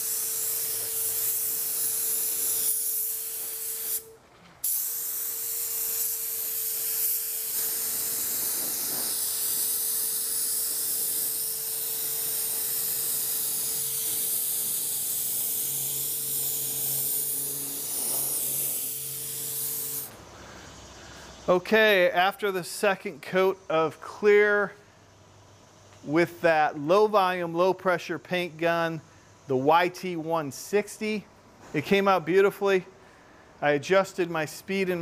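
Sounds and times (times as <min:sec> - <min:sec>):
spray gun hissing: 0:00.0 - 0:20.9.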